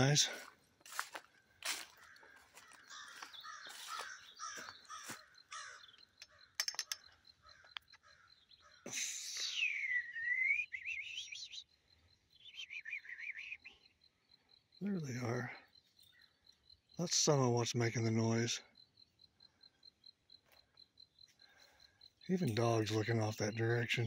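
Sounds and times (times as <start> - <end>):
crows cawing: 1.6 - 8.9.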